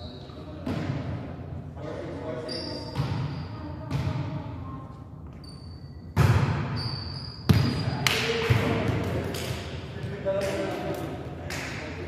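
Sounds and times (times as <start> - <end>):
shoe squeaks on gym floor: 0.0 - 0.6, 2.4 - 3.7, 5.2 - 8.0
volleyball being hit: 6.2 - 6.8.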